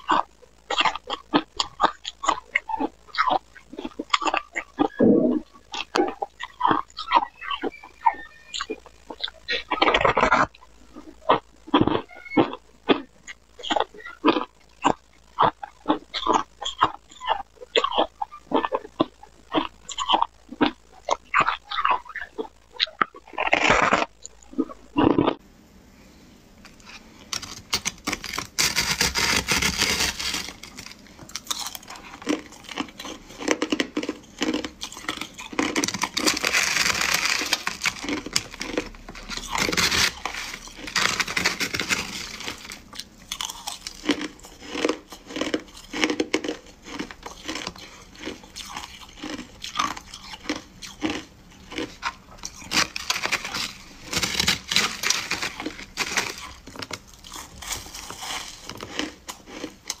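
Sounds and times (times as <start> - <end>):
spoon scraping shaved ice: 26.8 - 49.3, 49.9 - 59.7.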